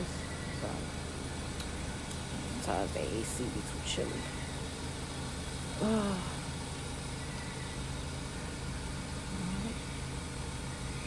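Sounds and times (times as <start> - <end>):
low mechanical hum: 0.0 - 11.0
woman murmuring: 5.8 - 6.4.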